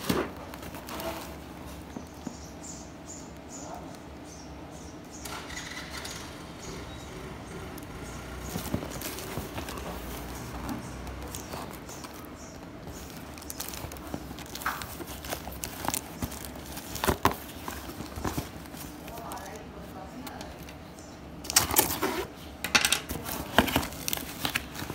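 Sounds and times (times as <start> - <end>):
plastic film crinkling: 0.0 - 2.3, 7.7 - 22.4, 23.1 - 24.9.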